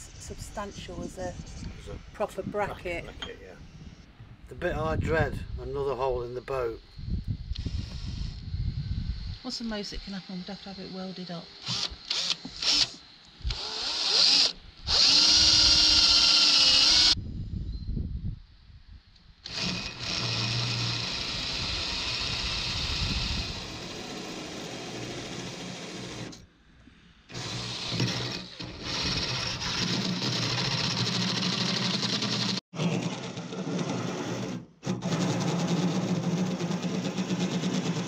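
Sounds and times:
cordless drill boring through steel: 0:11.6 - 0:17.2, 0:19.4 - 0:26.4, 0:27.3 - 0:32.6.

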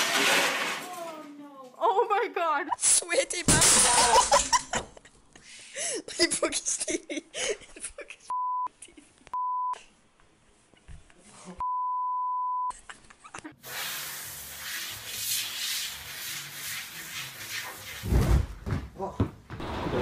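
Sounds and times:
censor beep tone: 0:09.4 - 0:09.8, 0:11.6 - 0:12.7.

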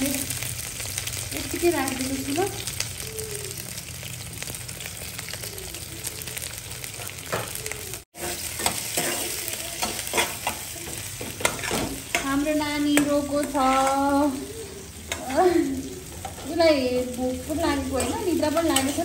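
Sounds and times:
garlic and onion sizzling in oil: 0:00.0 - 0:19.0
spoon scraping a pan: 0:08.2 - 0:14.4, 0:17.6 - 0:19.0.

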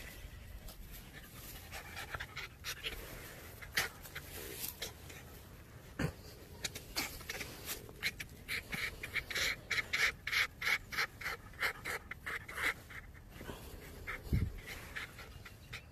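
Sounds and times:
dog panting: 0:00.0 - 0:05.6, 0:06.6 - 0:15.9.

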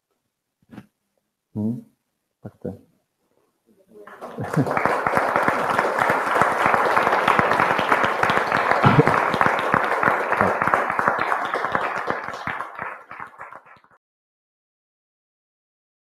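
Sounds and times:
audience applauding: 0:04.0 - 0:14.0.

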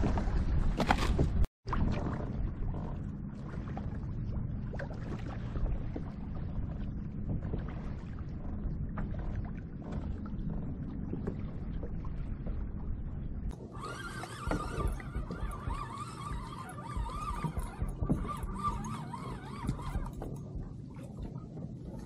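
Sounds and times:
water lapping against hull: 0:00.0 - 0:22.0
wind on microphone: 0:12.7 - 0:22.0.

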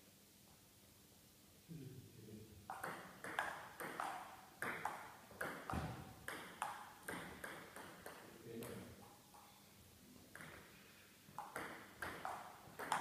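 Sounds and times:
table tennis ball clicking: 0:02.7 - 0:08.8, 0:11.4 - 0:13.0.

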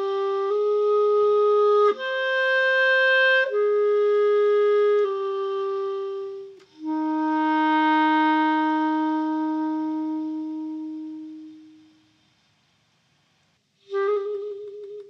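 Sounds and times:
clarinet sustained notes: 0:00.0 - 0:12.0, 0:13.8 - 0:15.0
faint click: 0:06.6 - 0:06.8.

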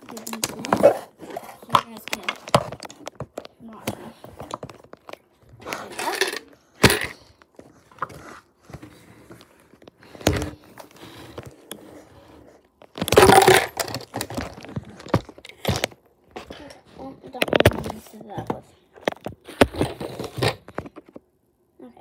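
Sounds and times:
handling knocks and clicks: 0:00.0 - 0:11.8.

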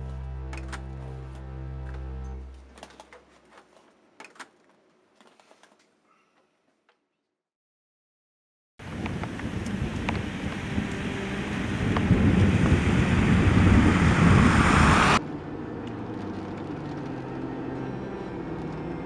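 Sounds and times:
car tyres hissing on wet road: 0:08.9 - 0:15.2
engine hum inside car cabin: 0:08.9 - 0:19.0
car engine: 0:09.3 - 0:19.0.

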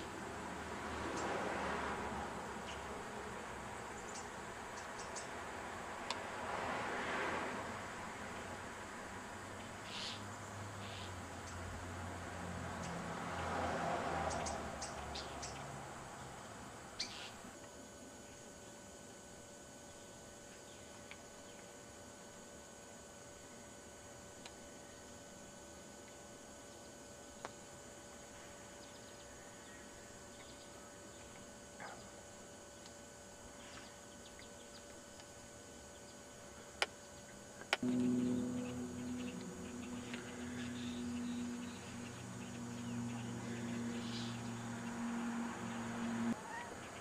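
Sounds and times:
loud low hum: 0:37.8 - 0:46.9.

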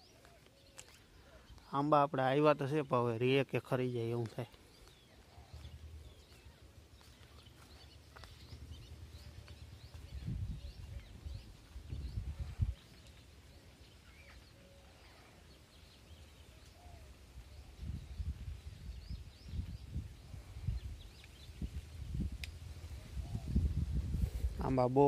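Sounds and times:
faint bird chirps: 0:00.0 - 0:02.0, 0:04.4 - 0:23.8
wind rumbling on microphone: 0:04.9 - 0:13.4, 0:16.3 - 0:25.0.

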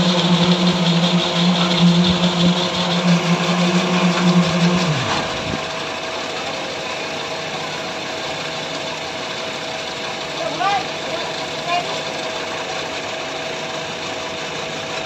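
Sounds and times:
low machine hum: 0:00.0 - 0:15.0
machinery humming: 0:00.0 - 0:15.0.

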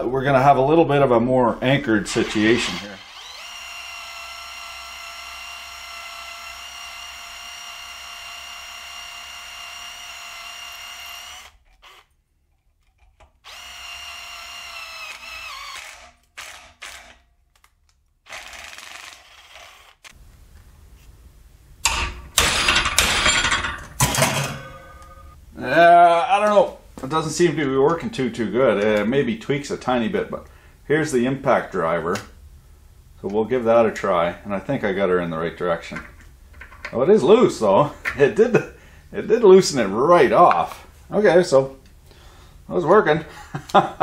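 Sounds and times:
cordless drill motor whine: 0:02.7 - 0:12.2, 0:13.4 - 0:17.1, 0:18.3 - 0:20.2.

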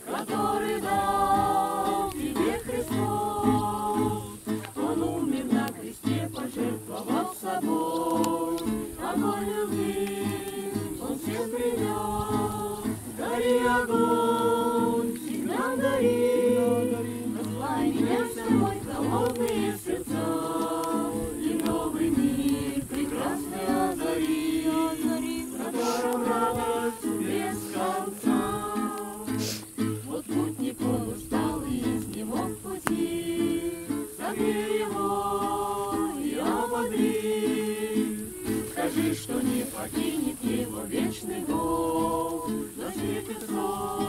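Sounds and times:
group singing in unison: 0:00.0 - 0:44.0
strummed acoustic guitar: 0:00.0 - 0:44.0
singers breathing: 0:25.7 - 0:26.2, 0:29.3 - 0:29.8.

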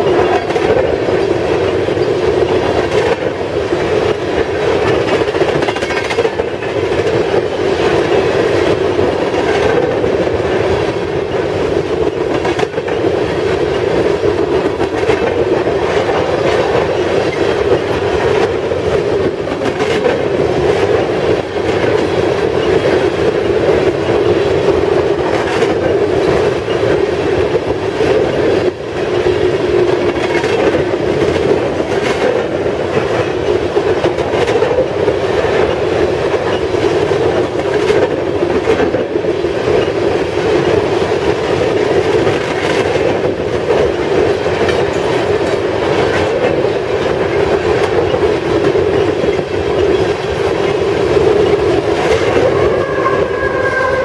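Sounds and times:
wheels clicking over rail joints: 0:00.0 - 0:52.6
freight train rumbling past: 0:00.0 - 0:54.0
locomotive whine: 0:48.0 - 0:54.0.

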